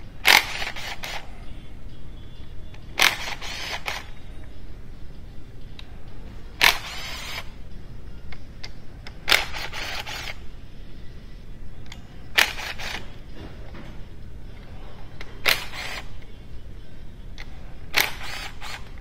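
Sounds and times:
cordless power driver spinning bolts: 0.2s - 1.2s, 3.0s - 4.2s, 6.6s - 7.6s, 8.6s - 10.4s, 12.3s - 13.2s, 15.2s - 16.3s, 17.4s - 19.0s.

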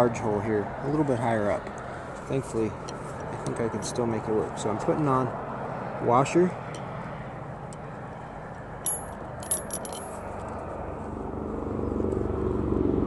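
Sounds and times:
low vehicle engine hum: 6.6s - 13.0s.

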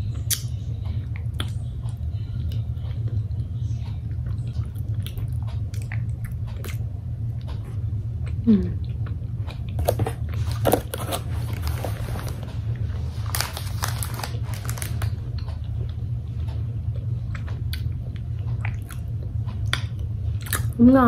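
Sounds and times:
steady low hum: 0.0s - 21.0s
person chewing: 0.2s - 20.8s
plastic wrappers crinkling: 9.8s - 15.2s.

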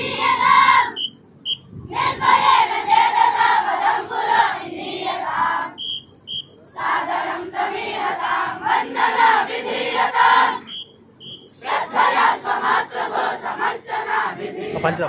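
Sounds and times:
short whistle blasts: 0.9s - 1.7s, 5.8s - 6.6s, 10.6s - 11.6s.

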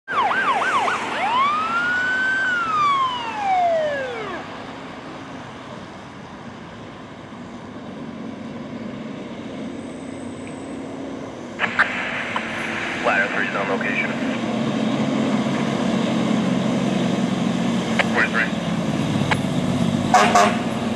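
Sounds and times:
electronic siren yelping and wailing: 0.1s - 4.7s, 18.0s - 18.6s
truck engine and road rumble: 0.1s - 20.9s.

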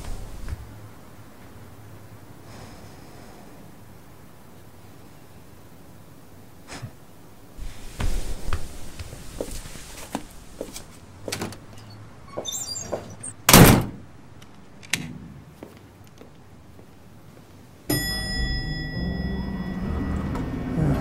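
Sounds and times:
footsteps: 0.0s - 0.7s, 7.6s - 13.2s
door shutting with thunk: 12.8s - 14.0s
low hum with ringing tones: 17.9s - 21.0s.

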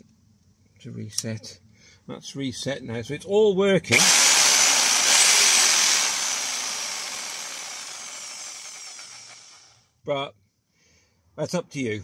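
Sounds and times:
jigsaw motor running and spinning down: 3.9s - 9.8s.

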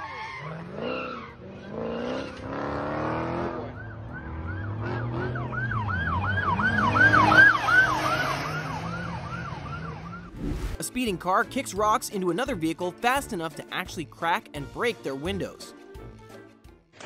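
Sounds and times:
police siren yelping: 3.6s - 10.4s.

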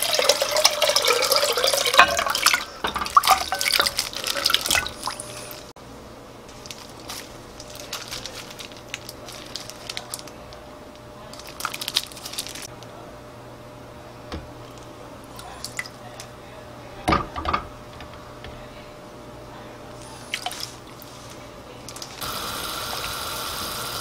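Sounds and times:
wine pouring into metal spoon: 0.0s - 5.3s.

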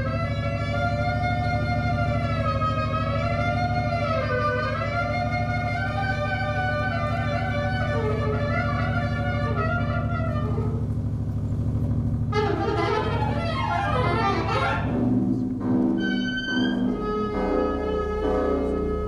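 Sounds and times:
low pulsing drone: 0.0s - 19.0s
sliding pitched tones: 0.0s - 19.0s
held high pitched note: 12.4s - 19.0s.

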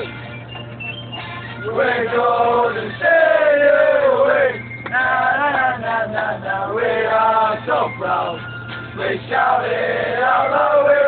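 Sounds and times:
low engine drone: 0.0s - 11.0s
drunken supporters singing chant: 1.7s - 8.4s, 9.0s - 11.0s.

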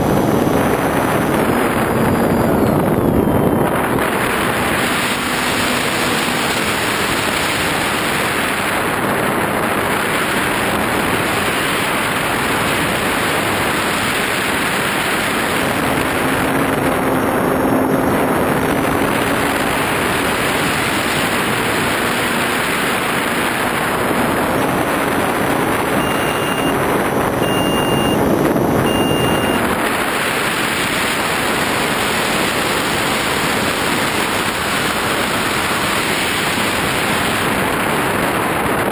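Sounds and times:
motor and propeller hum: 0.0s - 38.9s
wind rushing over camera: 0.0s - 38.9s
short high beeps: 26.0s - 26.8s, 27.4s - 28.2s, 28.8s - 29.6s.

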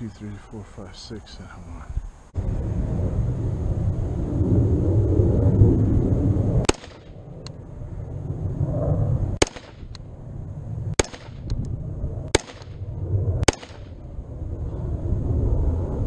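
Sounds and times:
rifle shots: 6.6s - 7.2s, 9.4s - 10.0s, 10.9s - 11.5s, 12.3s - 12.8s, 13.4s - 14.0s.

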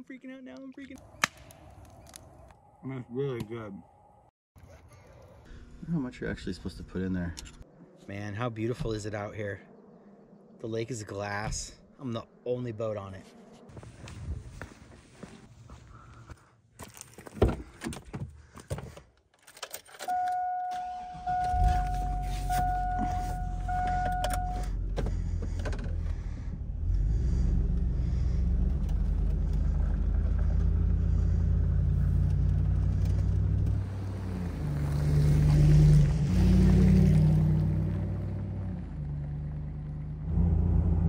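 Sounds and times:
dashboard warning chime: 20.0s - 24.8s.

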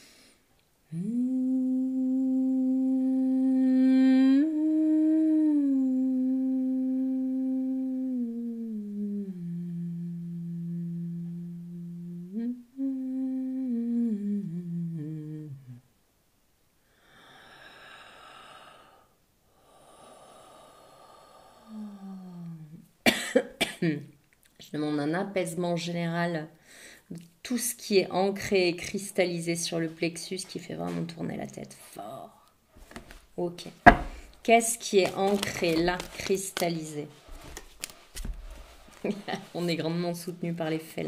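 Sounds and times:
woman humming: 0.8s - 15.9s, 20.6s - 22.9s, 35.0s - 37.4s
soft breaths: 16.8s - 22.8s, 26.6s - 27.1s, 33.9s - 34.5s, 35.7s - 40.1s.

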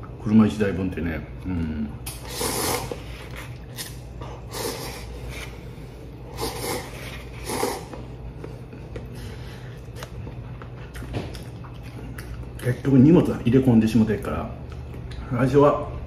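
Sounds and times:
noodles being slurped: 2.1s - 3.9s, 6.3s - 8.0s.

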